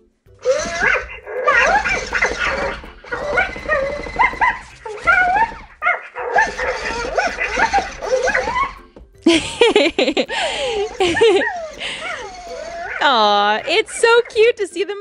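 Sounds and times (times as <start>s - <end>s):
toy puppy yips and barks: 0.4s - 8.8s, 11.1s - 14.4s.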